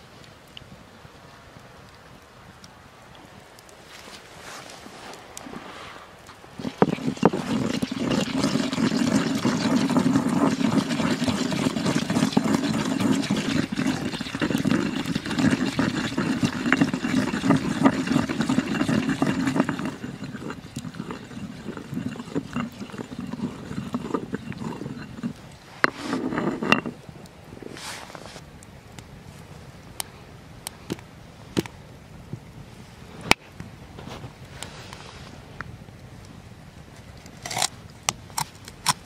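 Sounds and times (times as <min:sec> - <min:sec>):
stone pestle grinding in mortar: 0:06.6 - 0:27.0.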